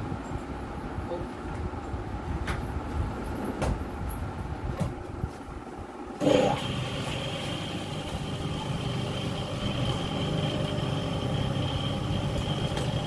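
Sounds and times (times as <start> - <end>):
electric motor humming and whining: 6.2 - 13.0.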